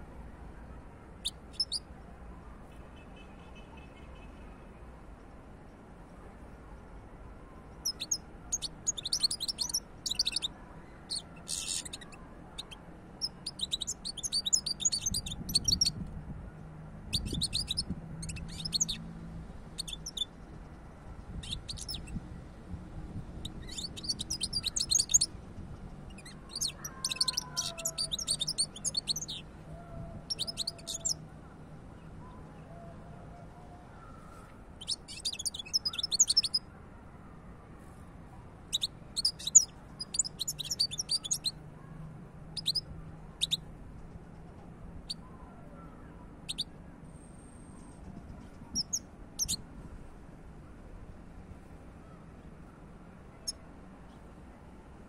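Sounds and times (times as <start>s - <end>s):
goldfinch twittering and trilling: 1.2s - 1.8s, 7.8s - 10.5s, 11.1s - 15.9s, 17.1s - 19.0s, 19.8s - 20.3s, 21.4s - 22.2s, 23.5s - 25.3s, 26.2s - 29.4s, 30.3s - 31.2s, 34.8s - 36.6s, 38.7s - 41.5s, 48.7s - 49.6s.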